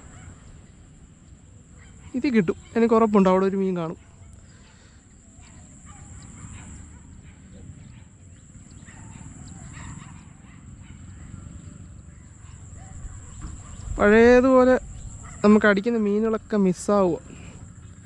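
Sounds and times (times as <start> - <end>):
faint animal calls: 0.0 - 15.6
wind rumble on microphone: 5.3 - 18.0.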